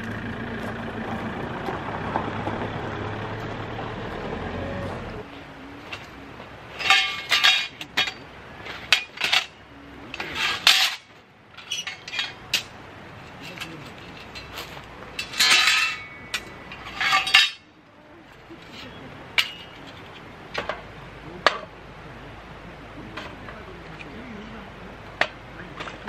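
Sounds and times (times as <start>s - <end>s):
metal camping gear clinking: 5.8s - 17.7s, 18.3s - 20.8s.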